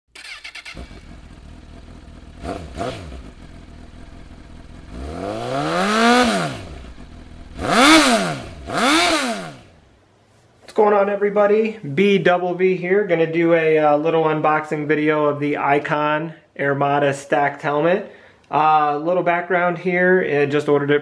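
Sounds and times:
motorcycle engine idling and revving: 0:00.1 - 0:09.8.

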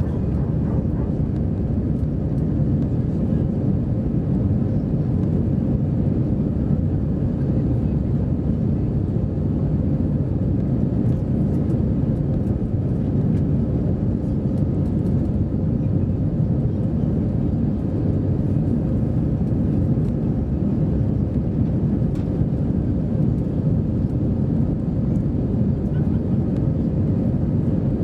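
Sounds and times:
airplane cabin engine rumble: 0:00.0 - 0:28.0.

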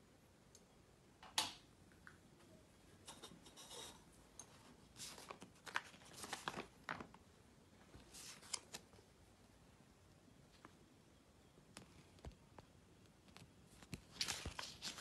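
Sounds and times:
paper rustling and crinkling: 0:04.6 - 0:07.2, 0:07.9 - 0:09.0, 0:13.3 - 0:15.0.

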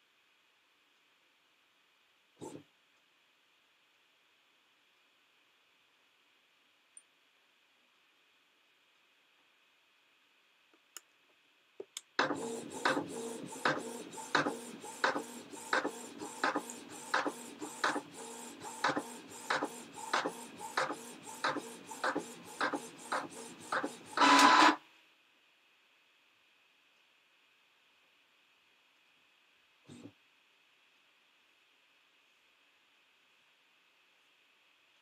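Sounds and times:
printer clicks: 0:12.2 - 0:18.1, 0:18.7 - 0:24.8
printer running: 0:12.2 - 0:24.8.

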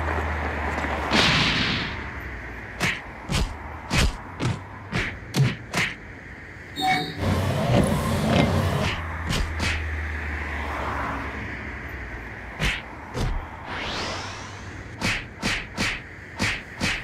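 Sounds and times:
sharp hand slaps: 0:02.8 - 0:06.0, 0:15.0 - 0:17.0
whoosh of noise: 0:13.2 - 0:15.9.

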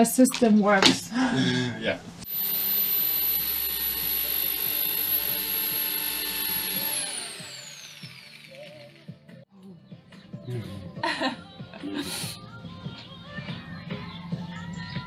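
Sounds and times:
electric drill whining: 0:02.2 - 0:09.4.

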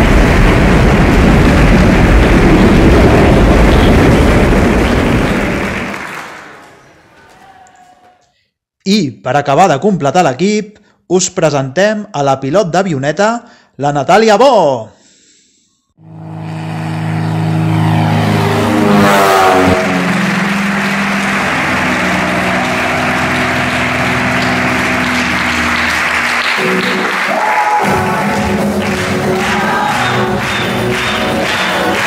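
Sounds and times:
propeller plane engine drone: 0:00.0 - 0:05.9, 0:16.0 - 0:26.4
music: 0:20.8 - 0:32.0.

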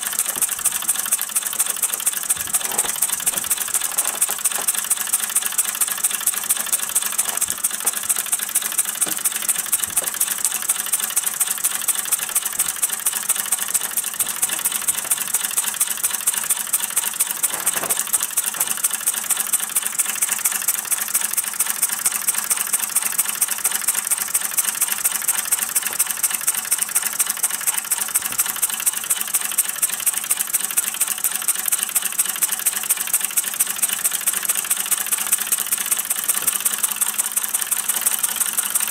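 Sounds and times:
model steam engine running: 0:00.0 - 0:38.9.

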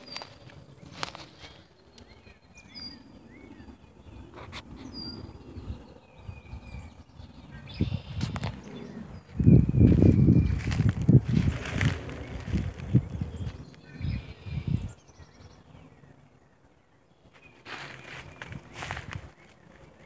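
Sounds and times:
footsteps crunching dry leaves: 0:00.0 - 0:01.7, 0:09.2 - 0:14.2, 0:17.3 - 0:20.0
rustling of dry leaf litter: 0:00.0 - 0:02.2, 0:09.2 - 0:14.2, 0:17.3 - 0:20.0
small birds chirping: 0:00.0 - 0:20.0.

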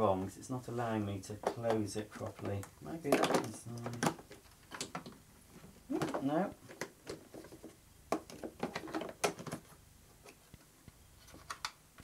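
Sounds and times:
plastic clicks and knocks: 0:01.4 - 0:05.2, 0:05.9 - 0:09.7.

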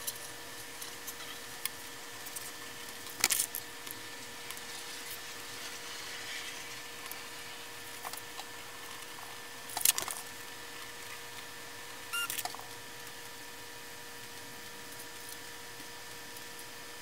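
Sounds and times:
faint steady hum: 0:00.0 - 0:17.0
brief squeak: 0:12.2 - 0:12.4.

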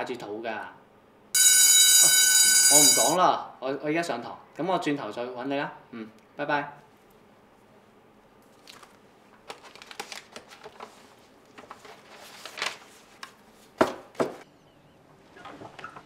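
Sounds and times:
paper rustling: 0:08.4 - 0:13.8.

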